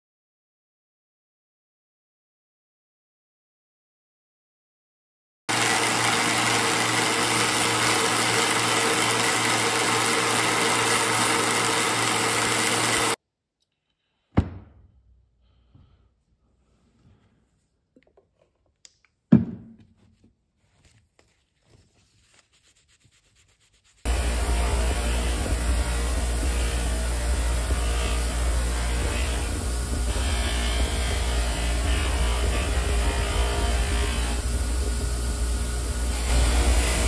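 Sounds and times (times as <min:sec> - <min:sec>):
belt sander running: 0:05.5 - 0:13.2, 0:24.1 - 0:37.0
faint handling sounds: 0:19.9 - 0:23.8.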